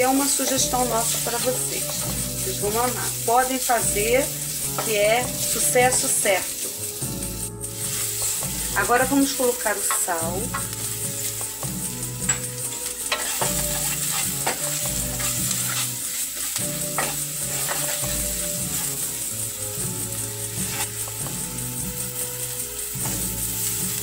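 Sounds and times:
background music: 0.0s - 24.0s
onion sizzling in oil: 0.0s - 24.0s
wooden spoon scraping pot: 13.1s - 18.2s.

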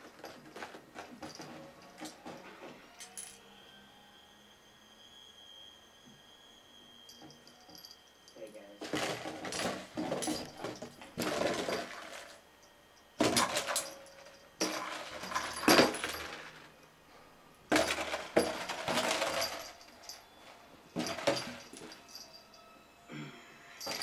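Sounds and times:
cat kibbles rattling in plastic carton: 8.8s - 12.4s, 17.7s - 19.9s, 21.0s - 21.9s.

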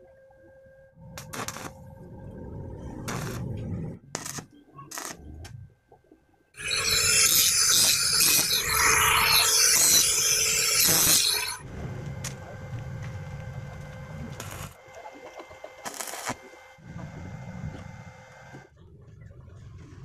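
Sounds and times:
low rumble: 1.0s - 4.2s, 11.6s - 14.8s
angle grinder grinding metal: 6.6s - 11.6s.

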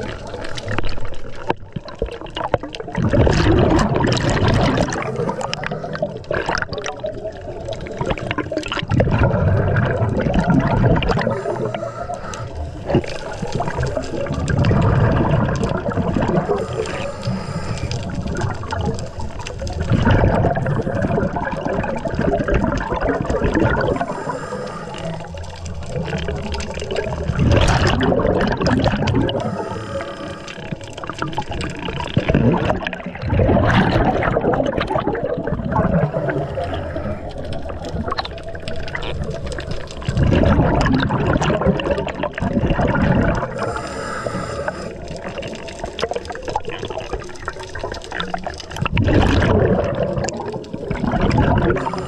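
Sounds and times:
exhaled bubbles gurgling underwater: 0.0s - 52.0s
regulator inhalation hiss: 16.4s - 18.1s, 23.8s - 25.7s, 29.3s - 30.8s, 43.6s - 45.5s.

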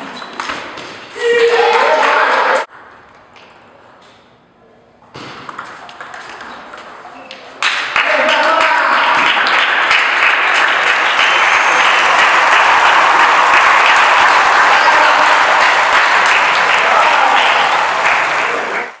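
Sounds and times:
crowd clapping: 7.6s - 19.0s.

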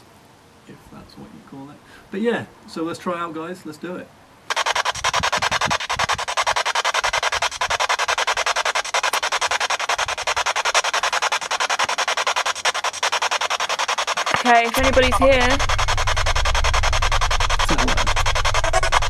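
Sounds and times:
radio scanner static chopping: 4.5s - 19.0s.

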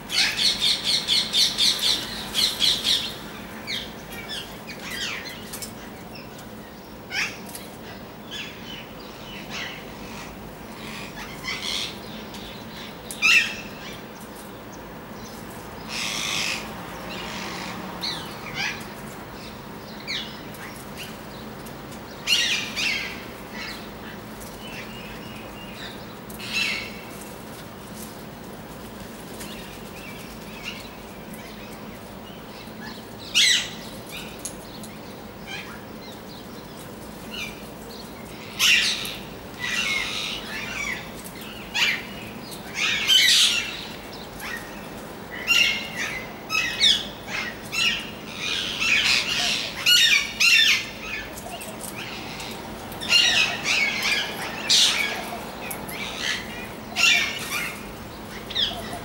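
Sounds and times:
parakeets screeching: 45.4s - 51.3s, 51.9s - 59.0s.

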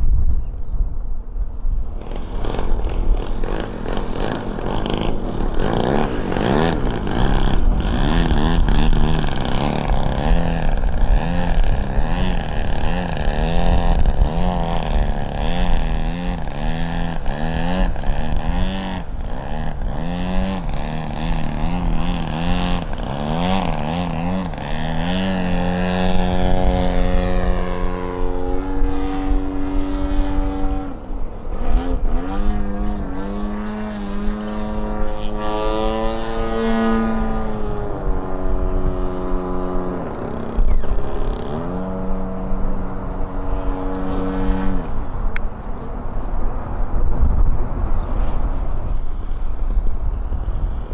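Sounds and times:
model plane motor and propeller: 1.8s - 50.9s.

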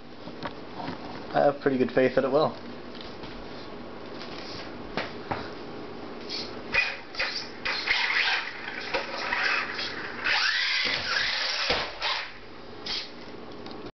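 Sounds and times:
electric motor whining: 7.2s - 12.4s.

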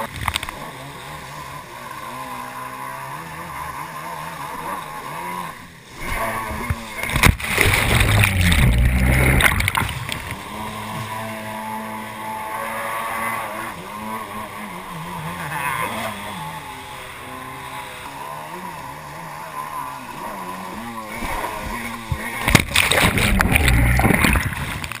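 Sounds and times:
rush of water with knocks: 0.0s - 2.1s, 6.0s - 14.4s, 20.2s - 25.0s
jet ski engine revving: 0.0s - 25.0s.

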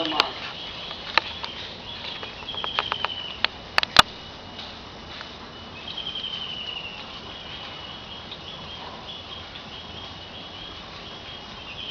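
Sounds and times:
insect trilling and chirping: 0.0s - 11.9s
faint steady high tone: 4.1s - 11.9s.

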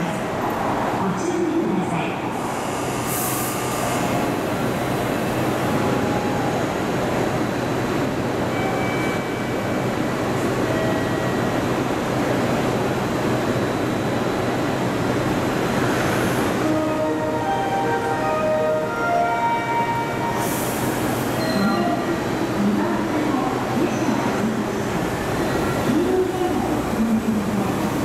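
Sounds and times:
electric train humming: 2.5s - 28.0s.

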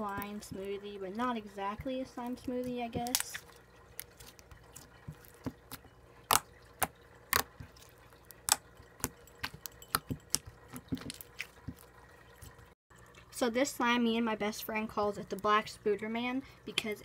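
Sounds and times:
slime squished by hand: 2.8s - 11.8s.

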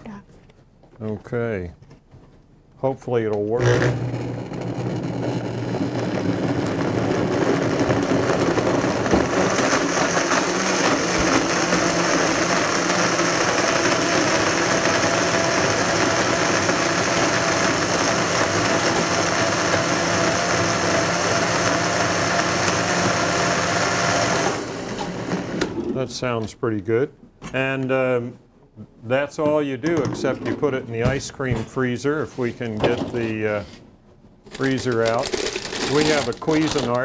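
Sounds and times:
blender whirring: 3.6s - 25.8s, 34.6s - 37.0s.

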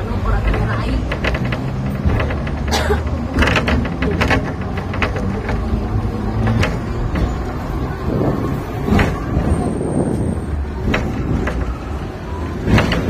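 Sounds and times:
tram clicks and rattles: 0.0s - 13.0s
tram rumbling on rails: 0.0s - 13.0s.

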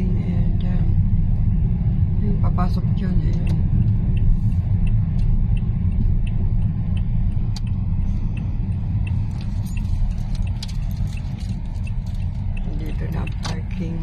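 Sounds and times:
engine and road rumble: 0.0s - 14.0s
turn signal ticking: 0.0s - 14.0s.

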